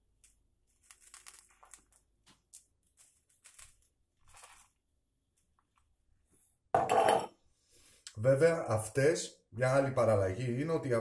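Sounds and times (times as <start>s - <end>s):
salt grains crackling: 0.0s - 5.0s.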